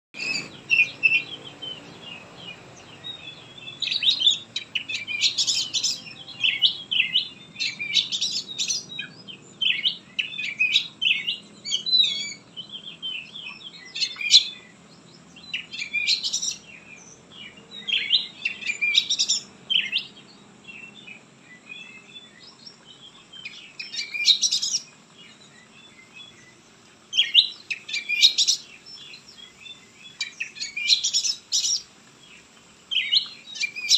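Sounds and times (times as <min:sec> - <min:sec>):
magpie-robin singing: 0:00.2 - 0:33.9.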